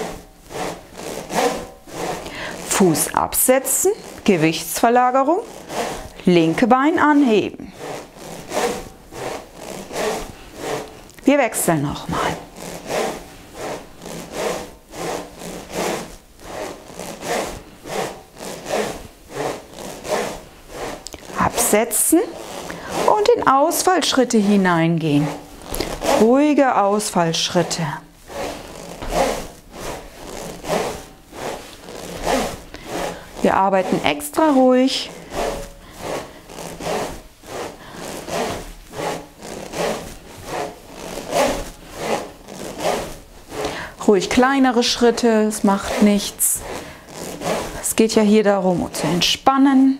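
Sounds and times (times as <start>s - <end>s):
swing rings swishing: 0.0s - 49.2s
steel balls rasping in plastic tubes: 0.0s - 49.9s.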